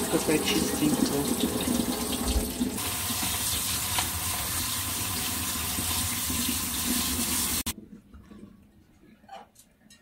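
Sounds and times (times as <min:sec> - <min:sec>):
tap water splashing into sink: 0:00.0 - 0:07.7.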